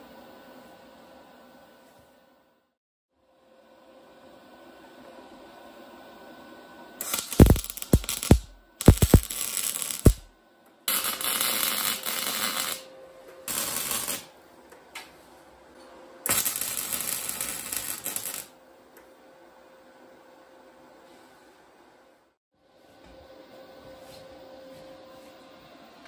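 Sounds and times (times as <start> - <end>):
welding arc crackling: 7.0 - 10.3, 10.9 - 12.9, 13.5 - 14.3, 16.3 - 18.5.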